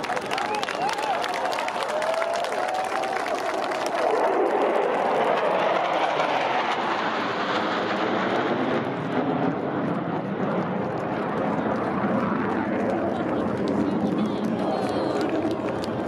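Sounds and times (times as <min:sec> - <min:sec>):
jet engines roaring overhead: 0:00.0 - 0:16.0.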